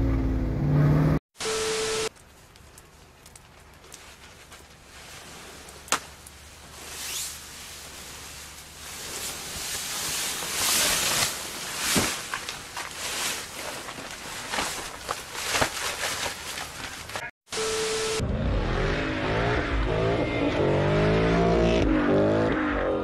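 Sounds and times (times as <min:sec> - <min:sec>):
steady beep: 0:01.4 - 0:02.1, 0:17.5 - 0:20.8
tv static noise: 0:01.4 - 0:02.1, 0:17.6 - 0:18.2
fabric cover rustling and snow sliding: 0:06.7 - 0:17.1
dull thump of snow dropping: 0:09.7 - 0:13.4.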